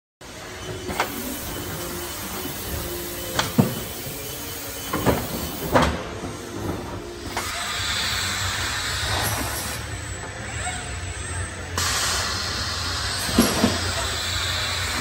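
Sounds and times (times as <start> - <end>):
compressed air hiss: 0.9 - 5.8, 7.2 - 9.9, 11.8 - 15.0.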